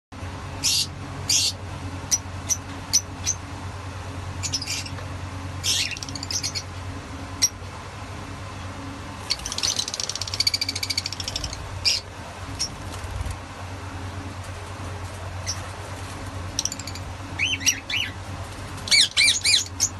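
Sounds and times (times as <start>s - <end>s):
lovebirds chirping shrilly: 0.6s - 3.4s, 4.4s - 5.0s, 5.6s - 6.7s, 9.2s - 13.0s, 16.5s - 18.2s, 18.8s - 19.9s.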